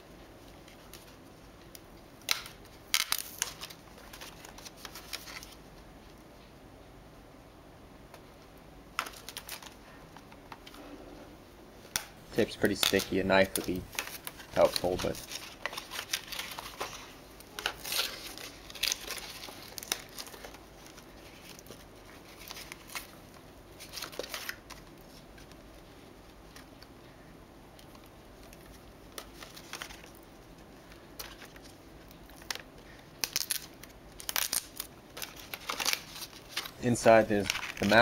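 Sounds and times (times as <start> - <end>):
cardboard crinkling and tearing: 3.0 - 5.6, 12.6 - 23.2, 23.8 - 25.5, 28.5 - 30.2, 31.2 - 38.0.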